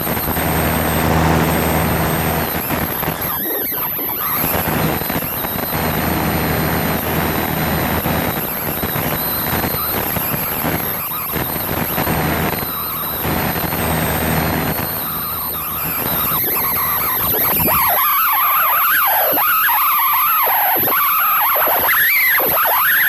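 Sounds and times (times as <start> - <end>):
propeller plane engine droning: 0.0 - 2.5.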